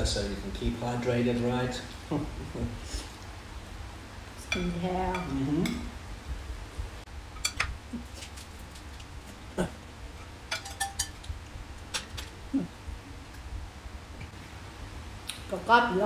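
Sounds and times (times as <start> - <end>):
spoons clicking on ceramic bowls: 10.5 - 11.3.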